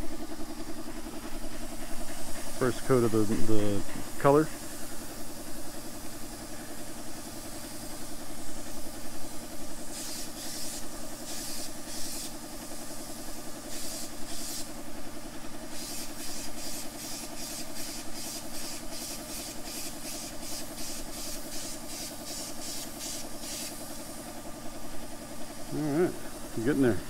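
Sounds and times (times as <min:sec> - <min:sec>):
hissing bursts: 0:15.7 - 0:24.1.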